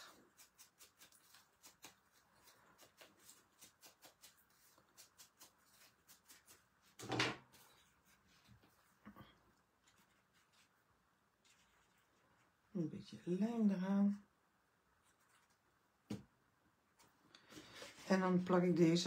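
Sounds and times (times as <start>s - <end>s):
foam tool dabbing on paper: 0.0s - 8.4s.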